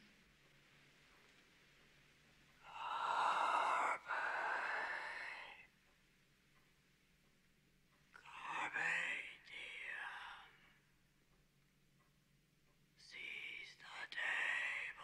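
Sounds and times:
man whispering: 0:02.6 - 0:05.7, 0:08.2 - 0:10.8, 0:13.0 - 0:15.0.

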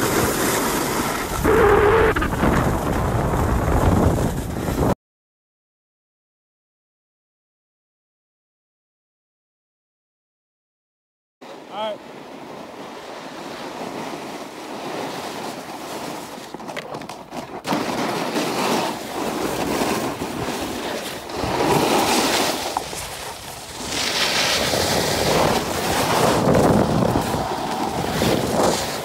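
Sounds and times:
snowboards scraping over snow: 0:00.0 - 0:05.0, 0:11.4 - 0:29.0
wind on microphone: 0:00.9 - 0:05.0, 0:19.3 - 0:29.0.

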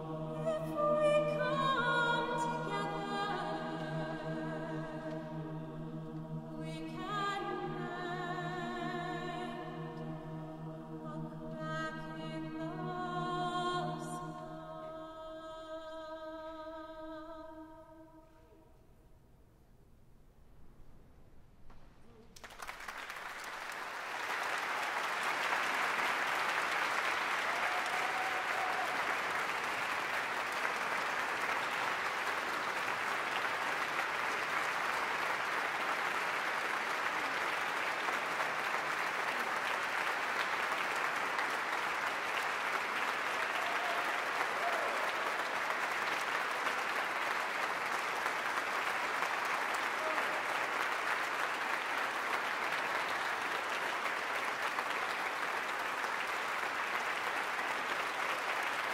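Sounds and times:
audience applauding: 0:22.2 - 0:58.9.

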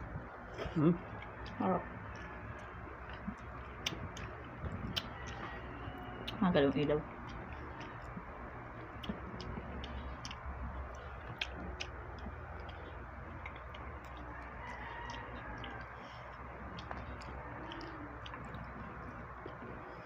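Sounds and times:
steady low hum: 0:00.0 - 0:20.0
fingers picking at food: 0:01.2 - 0:06.4.

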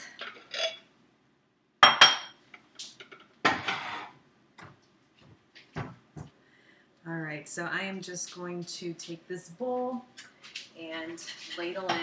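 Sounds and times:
bowl clattering on stone countertop: 0:01.8 - 0:02.4
ceramic bowls clinking: 0:01.8 - 0:02.4.

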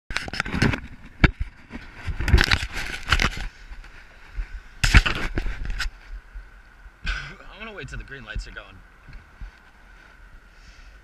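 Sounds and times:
rubbing against camera housing: 0:04.8 - 0:06.0.

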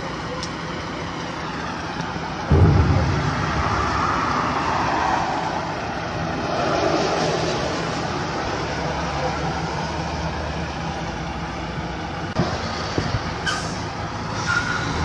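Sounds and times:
truck engine running: 0:00.0 - 0:06.3
loud low thud: 0:02.5 - 0:05.6.

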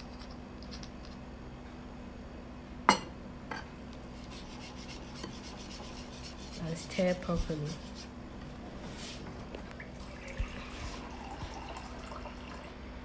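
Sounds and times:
whisk scraping plastic bowl: 0:04.1 - 0:08.1.

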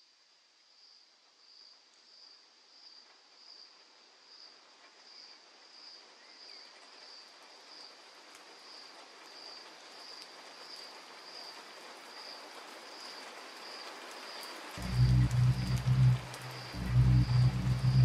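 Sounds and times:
high cricket-like chirp pulsing: 0:14.8 - 0:18.0.

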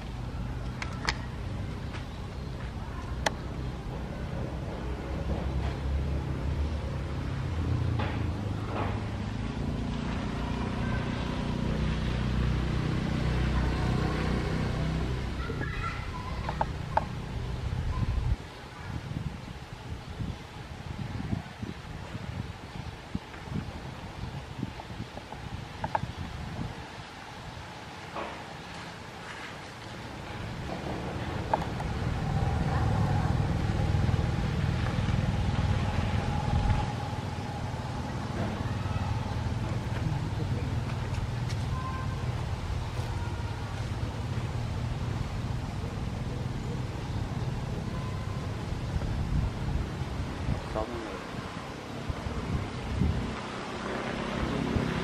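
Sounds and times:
passing motor vehicle rumble: 0:00.0 - 0:55.0
low engine hum: 0:29.6 - 0:55.0.

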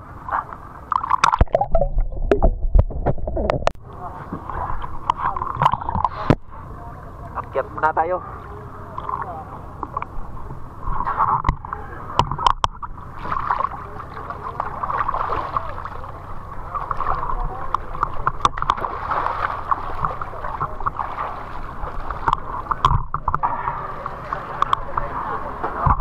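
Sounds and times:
water splashing against boat: 0:00.0 - 0:26.0
knocks and clicks: 0:01.0 - 0:03.8, 0:12.2 - 0:12.9, 0:22.2 - 0:23.5.

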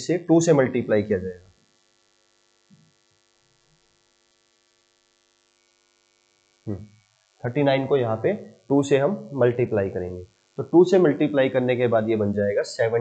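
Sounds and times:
electrical mains hum: 0:00.0 - 0:13.0
brief vocal sound: 0:06.7 - 0:06.9.

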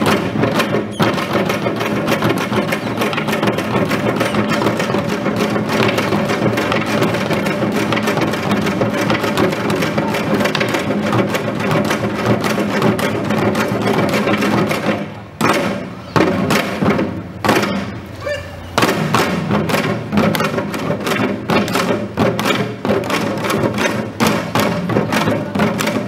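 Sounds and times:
hourglass drums playing: 0:00.0 - 0:18.2.

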